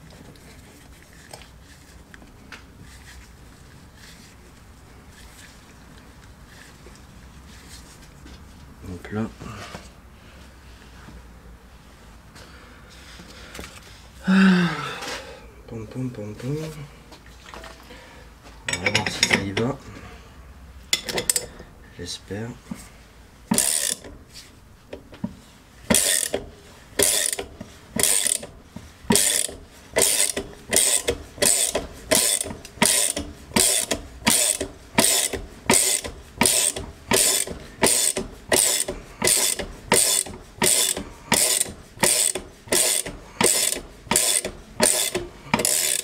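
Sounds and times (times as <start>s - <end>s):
ratchet wrench clicking: 23.5s - 24.2s, 25.9s - 26.4s, 27.0s - 28.5s, 29.1s - 46.0s.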